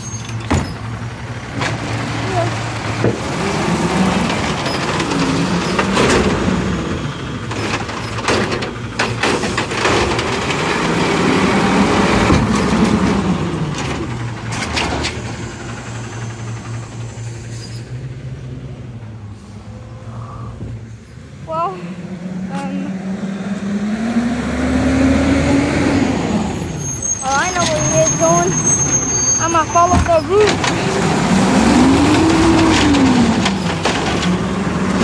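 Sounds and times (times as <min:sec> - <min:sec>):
trash cart clunks and bangs: 0:00.0 - 0:15.4, 0:29.8 - 0:35.0
garbage truck engine hum: 0:00.0 - 0:35.0.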